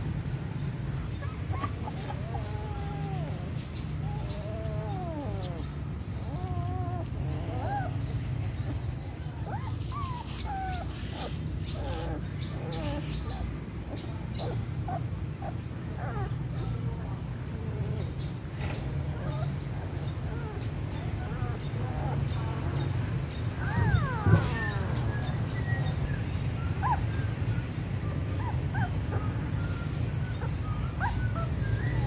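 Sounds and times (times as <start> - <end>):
puppies whimpering and whining: 0.8 - 32.0.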